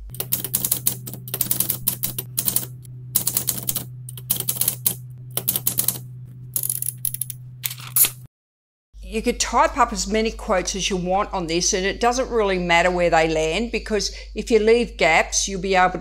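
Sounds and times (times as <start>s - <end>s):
typewriter keystroke clacks: 0.1s - 6.0s.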